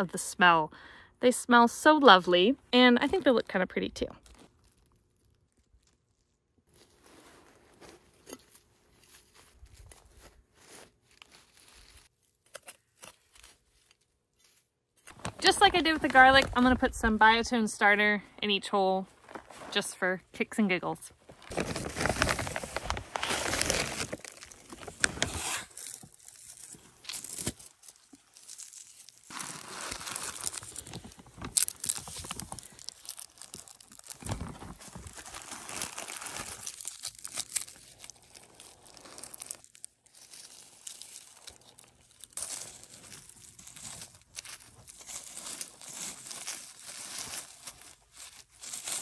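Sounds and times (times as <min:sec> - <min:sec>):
hands rustling in soil and leaves: 0:04.2 - 0:12.3, 0:25.7 - 0:49.0
plastic bag crinkling: 0:21.3 - 0:49.0.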